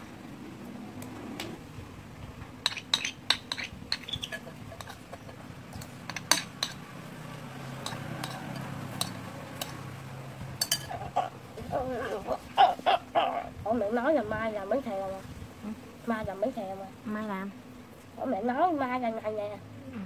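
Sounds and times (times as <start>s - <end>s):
metal spoon clinking on ceramic bowl: 7.8s - 9.8s, 10.6s - 11.0s.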